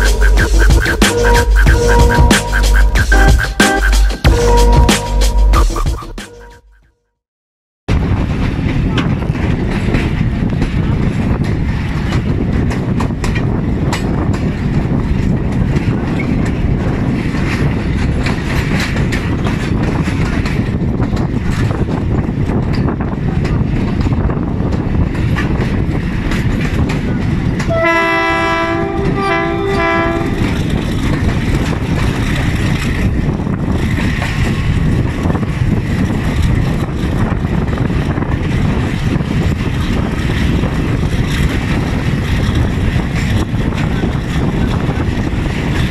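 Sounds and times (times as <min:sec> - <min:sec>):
locomotive engine working hard: 0:00.0 - 0:06.4, 0:08.4 - 0:45.9
two-tone locomotive horn blasts: 0:00.0 - 0:06.8, 0:27.6 - 0:30.9
wind noise: 0:07.9 - 0:45.9
train wheels clattering over rails: 0:08.0 - 0:45.9.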